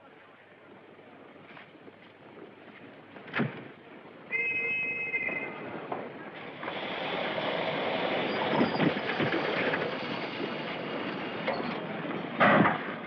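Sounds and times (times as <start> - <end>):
steam locomotive hissing: 4.3 - 13.0.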